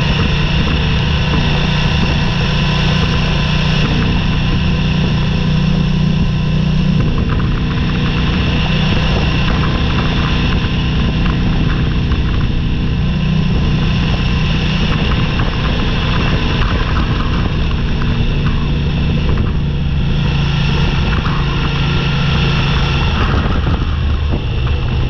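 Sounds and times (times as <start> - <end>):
gravel ticks: 0.0 - 25.0
motorcycle engine running: 0.0 - 25.0.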